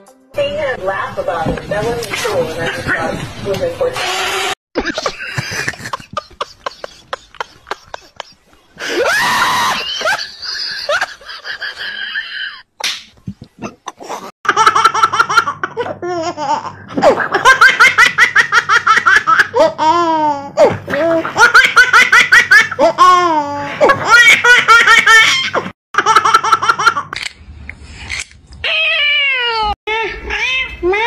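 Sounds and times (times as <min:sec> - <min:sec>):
person laughing hard: 0:04.8 - 0:12.7.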